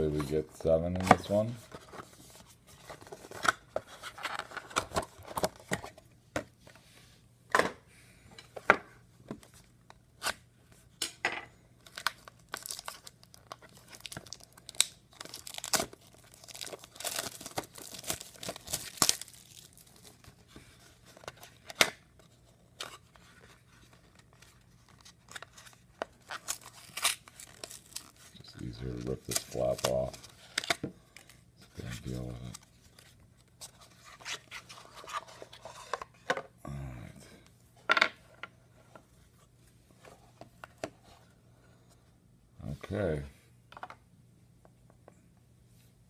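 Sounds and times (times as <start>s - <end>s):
plastic wrapping tearing and crinkling: 11.9s - 20.3s, 26.2s - 28.4s.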